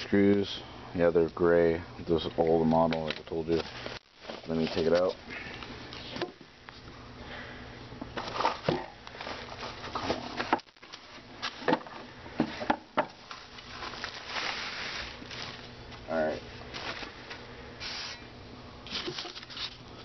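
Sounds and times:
bubble wrap crinkling: 3.4 - 5.2, 8.2 - 11.6, 13.2 - 17.4.

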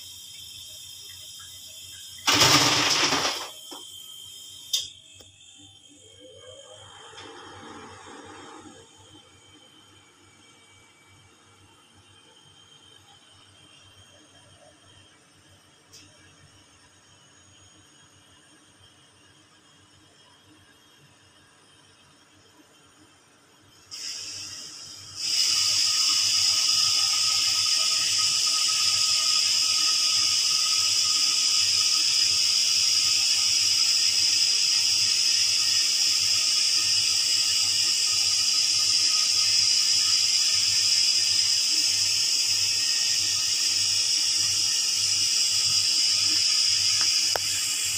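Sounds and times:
loud steady hiss: 0.0 - 11.6, 23.7 - 47.9.

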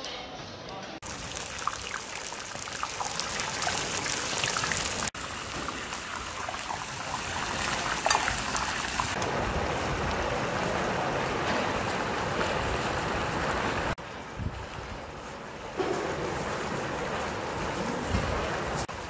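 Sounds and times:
meat sizzling in hot oil: 1.0 - 9.2.

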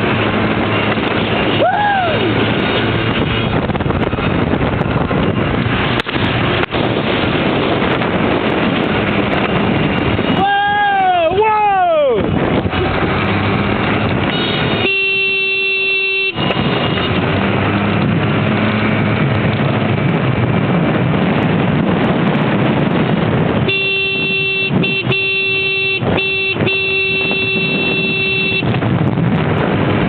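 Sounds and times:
wind rush: 0.0 - 30.0
scooter engine: 12.4 - 20.9, 22.8 - 30.0
vehicle horn honking: 14.2 - 17.3, 23.6 - 28.8.

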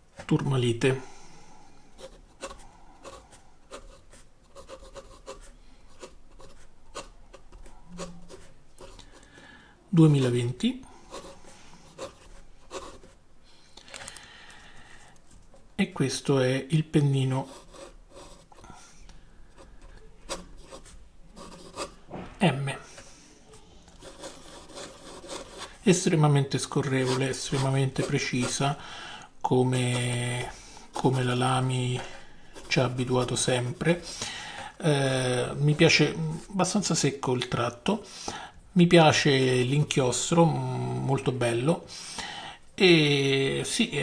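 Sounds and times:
fountain pen scratching on paper: 2.0 - 9.2, 11.0 - 13.2, 17.4 - 18.6, 19.6 - 22.0, 23.9 - 25.8, 26.8 - 28.8, 32.5 - 34.1.

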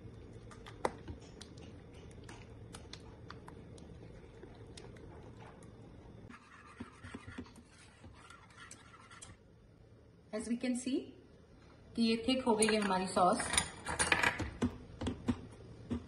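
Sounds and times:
steady low hum: 0.0 - 12.4
spatula scraping a pan: 6.3 - 9.4
whisk scratching through sauce: 6.3 - 9.4.

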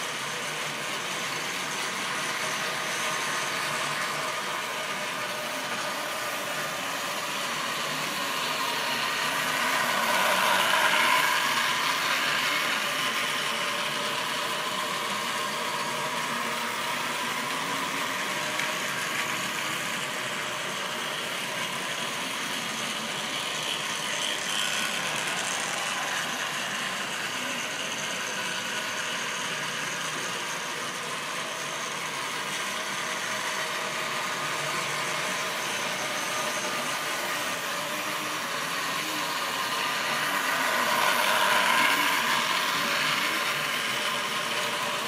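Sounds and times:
model train wheels rattling: 38.8 - 45.0.

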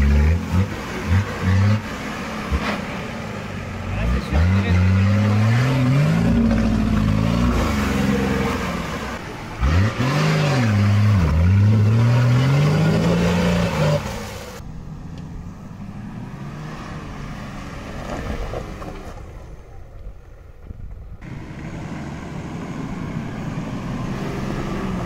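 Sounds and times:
off-road vehicle engine revving: 0.0 - 14.6, 21.2 - 25.0.

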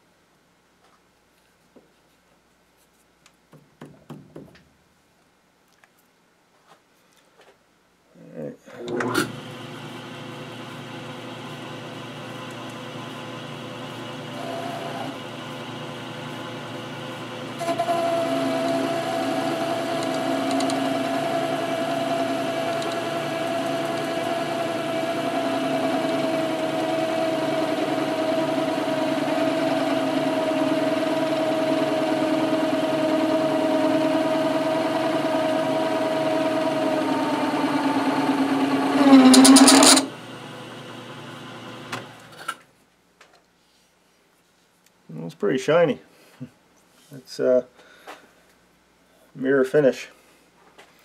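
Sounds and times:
metal lathe whining: 10.4 - 40.1.

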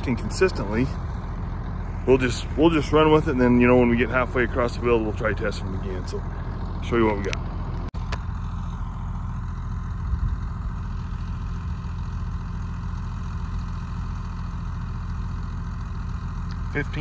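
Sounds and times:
tractor engine idling: 0.0 - 17.0.

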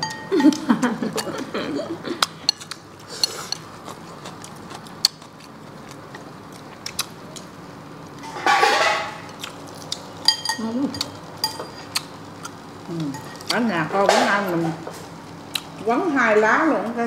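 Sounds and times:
chopsticks clinking on bowls: 8.5 - 12.1, 13.0 - 13.6.

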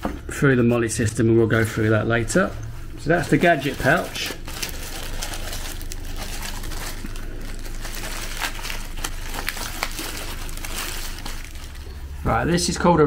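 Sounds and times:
low steady hum: 0.0 - 13.0
plastic bag crinkling: 3.0 - 12.4.

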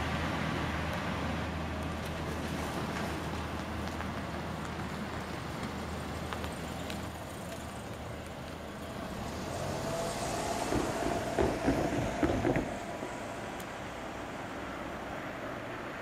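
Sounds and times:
metallic clanks of wheels on rails: 10.6 - 13.7.

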